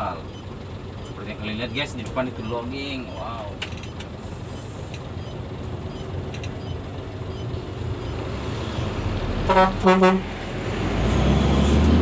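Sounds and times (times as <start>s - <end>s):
diesel truck engine running: 0.0s - 12.0s
truck horn toots: 9.4s - 10.4s.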